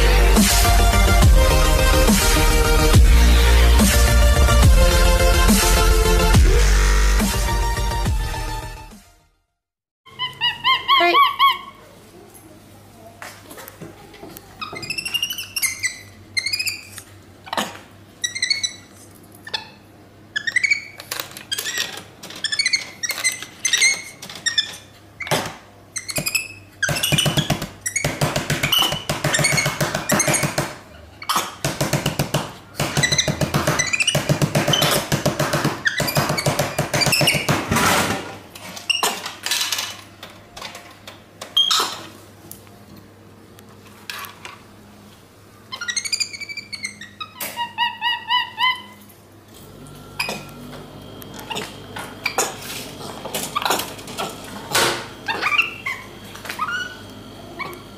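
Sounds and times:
monkey squeaky chirps: 0:10.1 - 0:11.8, 0:14.6 - 0:17.6, 0:18.2 - 0:19.8, 0:20.4 - 0:21.0, 0:45.7 - 0:49.1, 0:55.3 - 0:57.0.

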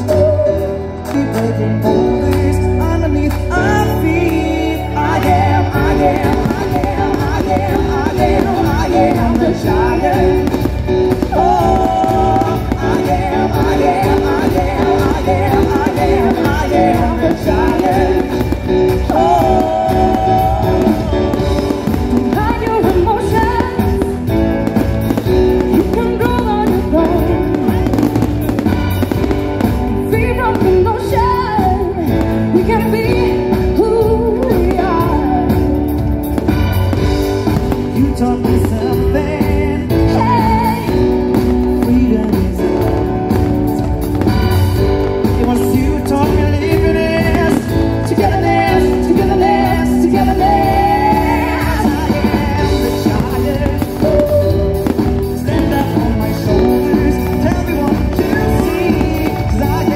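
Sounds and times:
song with singer and beat: 0:00.0 - 0:59.9
faint firework bursts: 0:05.3 - 0:33.8.

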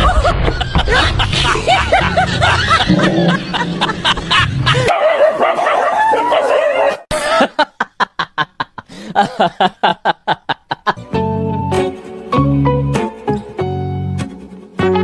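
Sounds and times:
person laughing: 0:00.0 - 0:04.9, 0:07.1 - 0:11.0.

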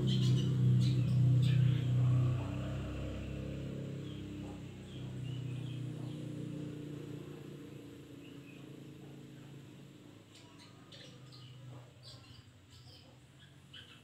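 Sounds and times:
vehicle engine hum: 0:00.0 - 0:14.0
faint bird chirps: 0:08.2 - 0:14.0.

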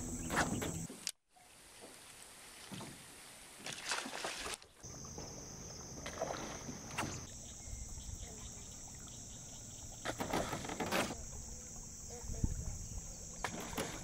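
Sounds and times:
insects buzzing: 0:00.0 - 0:01.0, 0:04.8 - 0:14.0
fish splashing in water: 0:03.6 - 0:07.3.

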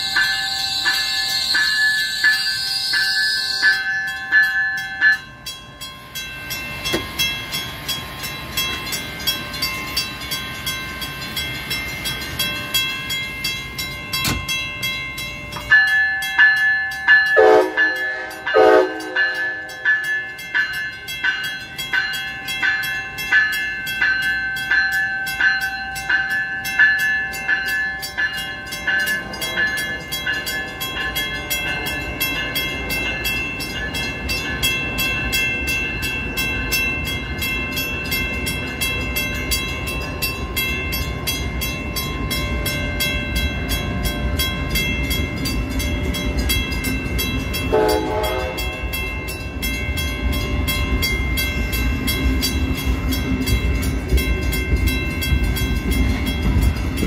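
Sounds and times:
crossing warning bell ringing: 0:00.0 - 0:57.0
passenger train passing: 0:00.0 - 0:57.0
train horn blasts: 0:17.4 - 0:19.8, 0:47.7 - 0:48.8.

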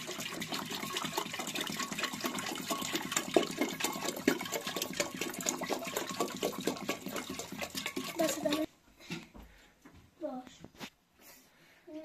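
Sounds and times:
water pouring into kettle: 0:00.0 - 0:08.7.

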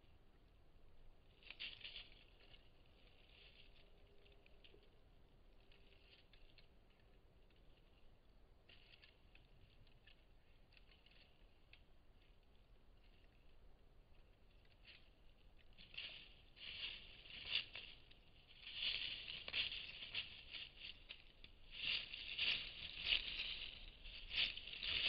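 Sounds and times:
twigs and dry leaves crackling: 0:00.0 - 0:25.0.

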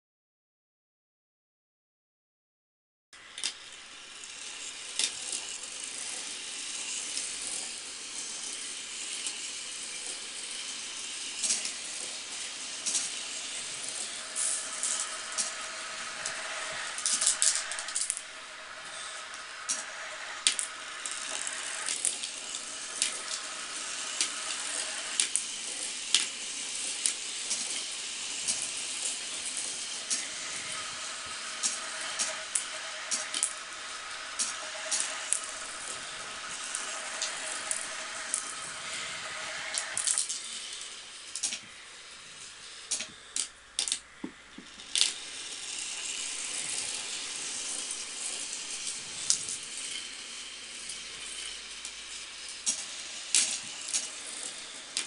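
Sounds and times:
marbles rolling hiss: 0:03.2 - 0:55.0.

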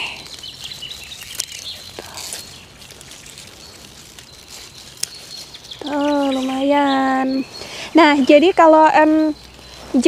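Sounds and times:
stalks snapping: 0:00.0 - 0:06.5
leaves rustling: 0:00.0 - 0:10.0.

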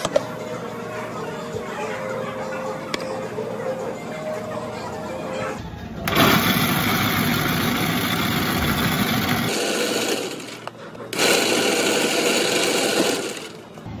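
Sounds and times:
ice shaving machine running: 0:06.1 - 0:13.8.

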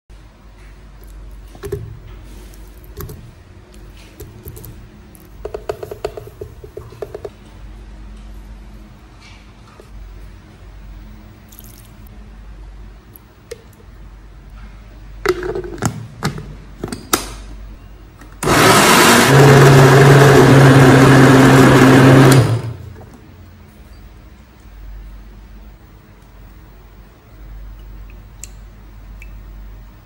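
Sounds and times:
blender motor running: 0:18.4 - 0:22.8.

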